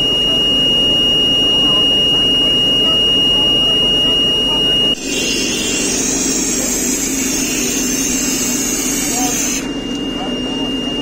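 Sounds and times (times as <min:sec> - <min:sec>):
high-pitched tone: 0:00.0 - 0:05.3, 0:09.1 - 0:11.0.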